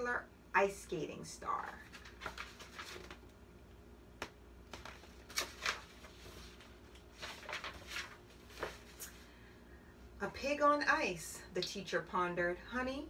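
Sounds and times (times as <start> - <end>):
book pages turning: 1.8 - 3.4, 4.2 - 9.2.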